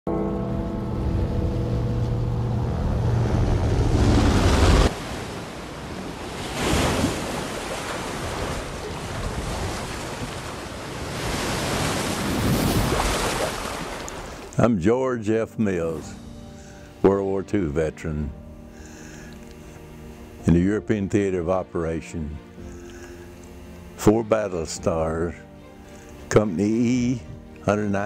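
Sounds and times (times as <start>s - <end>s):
low drone: 0.1s - 6.0s, 15.7s - 28.0s
ocean surf breaking on beach: 3.2s - 14.5s.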